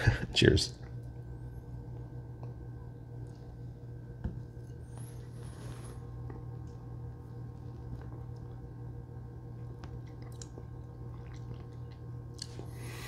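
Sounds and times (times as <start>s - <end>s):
steady low hum: 0.0s - 13.0s
lip smacks and mouth clicks: 9.8s - 12.7s.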